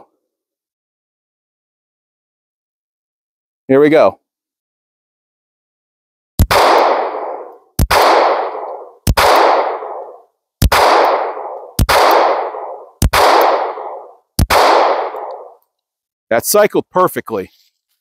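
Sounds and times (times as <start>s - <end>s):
pistol shots with echo: 6.4s - 15.6s.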